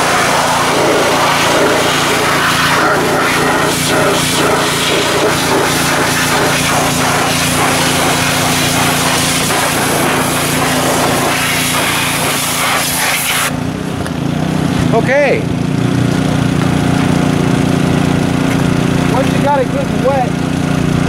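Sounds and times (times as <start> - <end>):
pressure washer spraying water: 0.0 - 13.6
low engine hum: 0.0 - 21.0.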